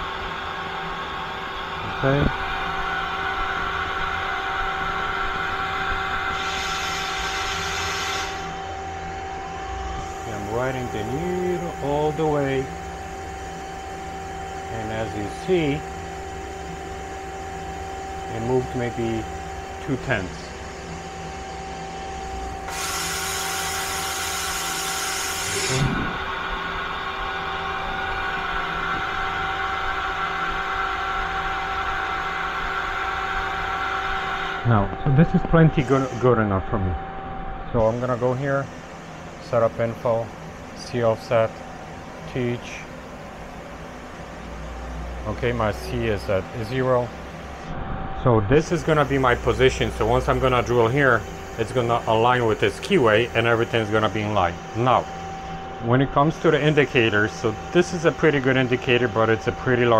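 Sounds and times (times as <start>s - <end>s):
lathe machine hum: 0.0s - 59.9s
hiss: 6.4s - 8.5s.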